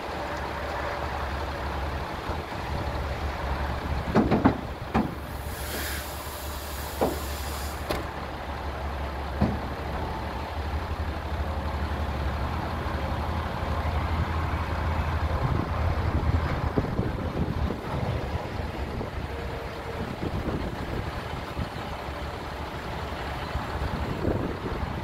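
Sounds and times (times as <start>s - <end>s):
diesel engine running: 0.0s - 25.0s
hydraulic hiss: 5.2s - 8.0s.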